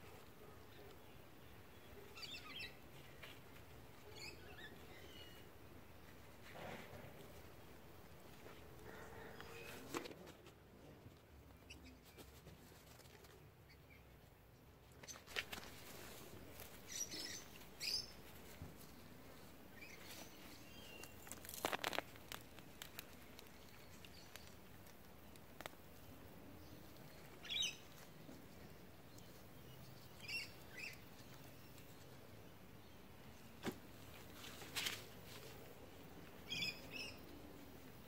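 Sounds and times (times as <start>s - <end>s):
hand digging through soil and straw: 20.0s - 25.6s.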